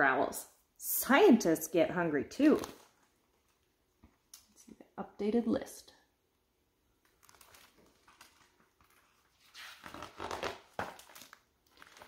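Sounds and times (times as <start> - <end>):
book pages turning: 7.0 - 12.0.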